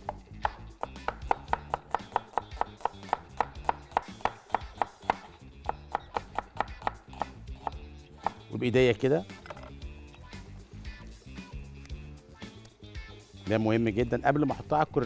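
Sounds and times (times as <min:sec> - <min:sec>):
cleaver knocking on cutting board: 0:00.0 - 0:07.0.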